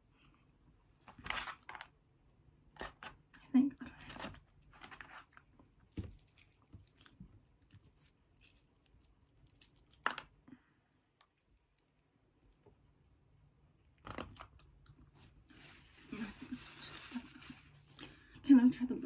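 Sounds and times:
person chewing: 5.8s - 10.0s.

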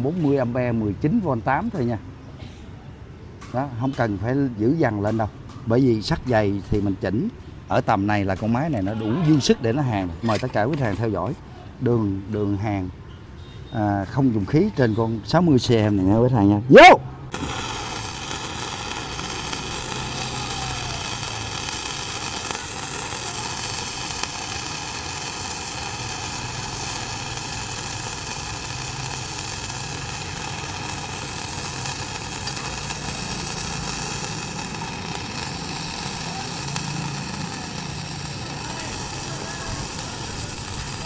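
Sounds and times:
welding arc burning: 8.4s - 11.2s, 16.8s - 41.0s.

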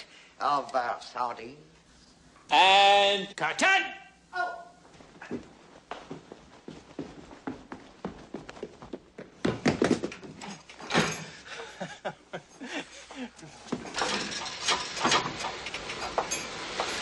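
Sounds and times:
person exclaiming: 2.5s - 4.8s
knocks and thumps: 9.2s - 11.3s.

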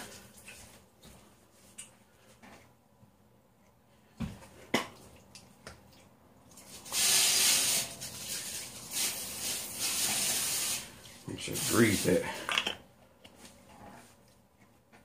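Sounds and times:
tap water running into sink: 6.7s - 10.9s.

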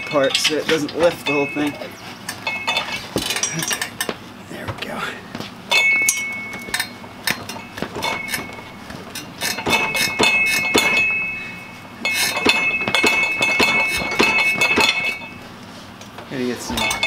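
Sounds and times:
metal bar clinking and knocking: 5.7s - 11.4s, 12.1s - 15.3s.

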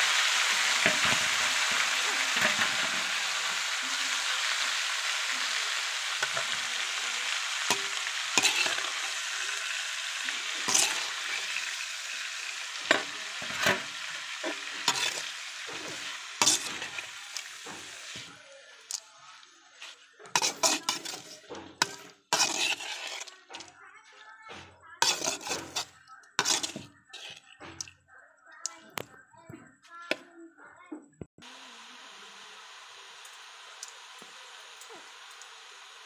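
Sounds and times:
greens sizzling in a frying pan: 0.0s - 23.6s, 25.0s - 27.4s, 31.4s - 36.0s
metal spoon scraping a pan: 0.2s - 19.0s, 19.8s - 23.8s, 24.5s - 27.9s.

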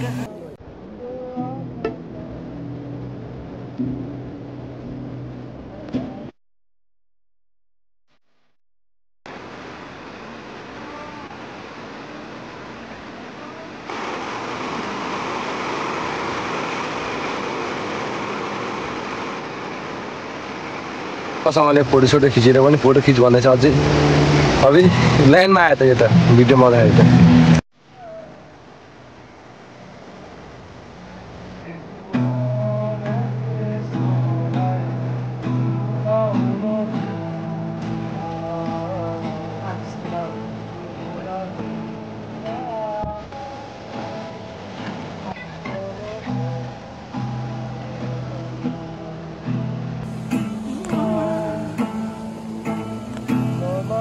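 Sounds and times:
river water rushing: 9.3s - 27.6s, 28.4s - 54.0s
waves breaking against bank: 13.8s - 27.6s, 50.1s - 54.0s
acoustic guitar strumming: 23.5s - 25.4s, 26.0s - 27.6s, 32.1s - 54.0s.

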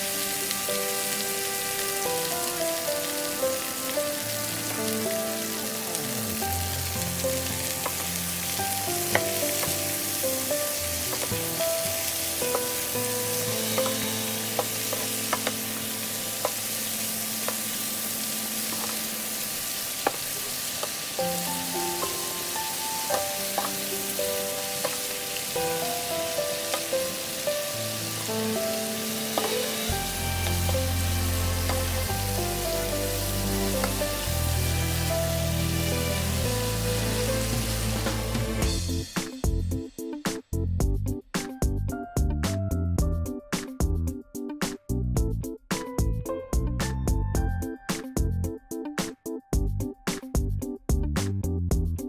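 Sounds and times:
food sizzling in a frying pan: 0.0s - 39.4s.

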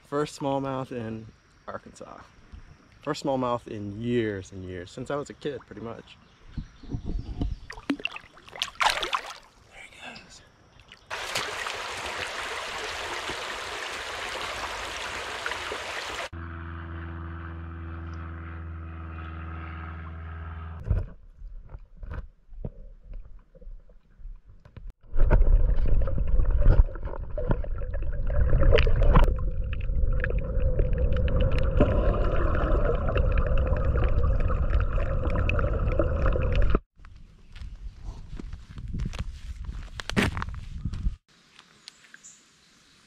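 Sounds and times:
muffled rumble of water: 25.0s - 36.8s
underwater low hum: 25.0s - 36.8s.

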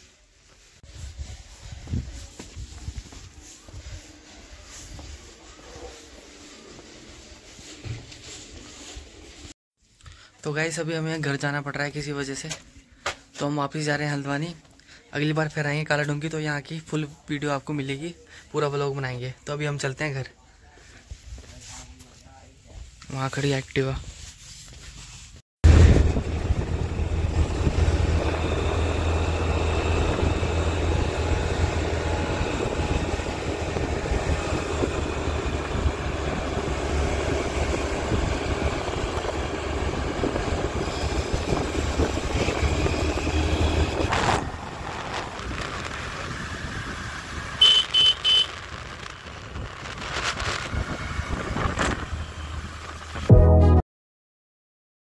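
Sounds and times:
road noise: 25.6s - 53.3s
scooter engine humming: 25.7s - 53.2s.

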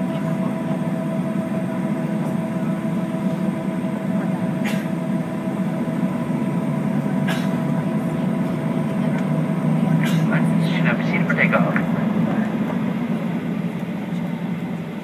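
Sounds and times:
jet engines idling in cabin: 0.0s - 15.0s.

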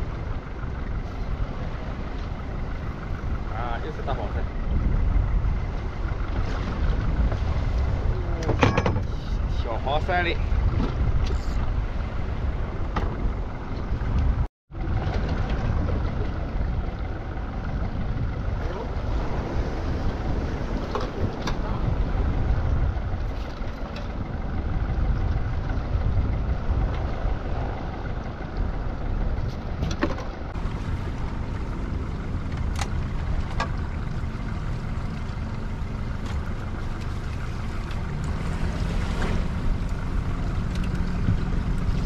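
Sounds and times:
boat engine rumbling: 0.0s - 42.0s.

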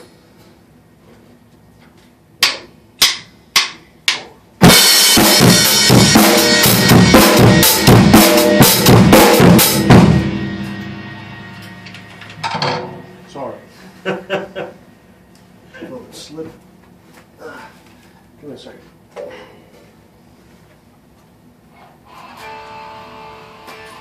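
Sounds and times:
drum kit playing: 2.4s - 14.3s
cymbals ringing: 4.7s - 14.0s.

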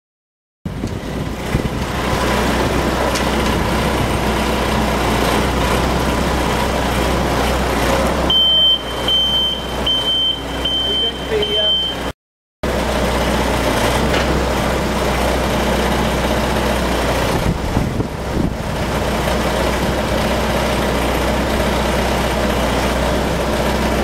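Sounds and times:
diesel engine running: 0.7s - 24.0s
reversing alarm beeping: 8.3s - 12.1s.

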